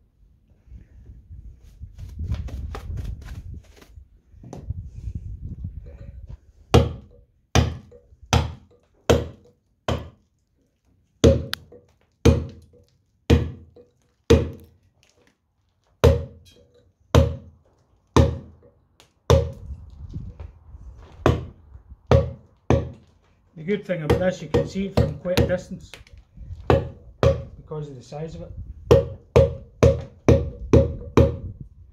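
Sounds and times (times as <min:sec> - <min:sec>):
mallet striking chisel into stone: 0:06.7 - 0:10.2, 0:11.2 - 0:14.7, 0:16.0 - 0:16.6, 0:18.2 - 0:18.6, 0:22.1 - 0:23.0, 0:24.1 - 0:25.7, 0:26.7 - 0:27.5, 0:28.9 - 0:31.5.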